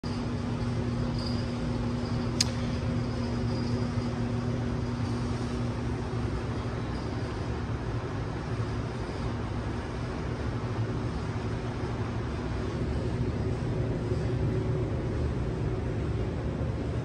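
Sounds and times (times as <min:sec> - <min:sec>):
sharp click: 0:02.4 - 0:02.7.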